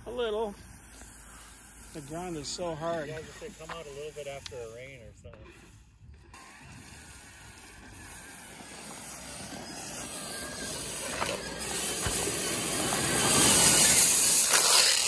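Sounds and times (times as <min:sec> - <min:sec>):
rc truck motor and tyres hissing: 0:00.0 - 0:15.0.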